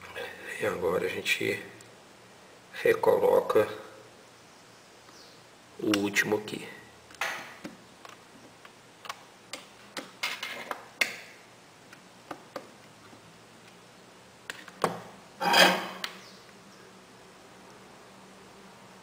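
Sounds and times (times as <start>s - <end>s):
rustling scrape: 15.4s - 16.0s.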